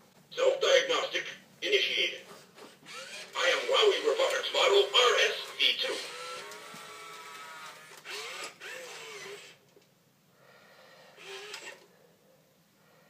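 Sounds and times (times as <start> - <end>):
toy robot gear motors whirring: 2.8 - 9.6, 11.2 - 11.9.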